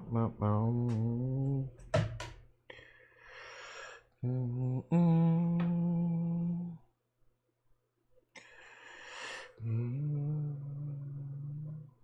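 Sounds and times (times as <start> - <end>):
loud breath in: 2.7 - 4.1, 8.4 - 9.6
man humming held notes: 4.2 - 6.8, 9.6 - 12.0.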